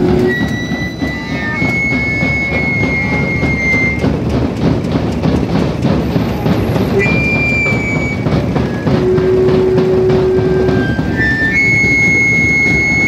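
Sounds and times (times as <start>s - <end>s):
high steady tone: 0.0s - 4.1s
barrel drums beaten fast: 0.0s - 13.0s
crowd noise: 0.0s - 13.0s.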